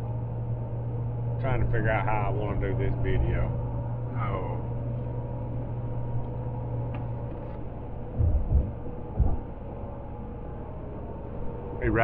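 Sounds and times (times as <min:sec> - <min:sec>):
vehicle driving drone: 0:00.0 - 0:12.0
dull low thumps: 0:02.6 - 0:10.4.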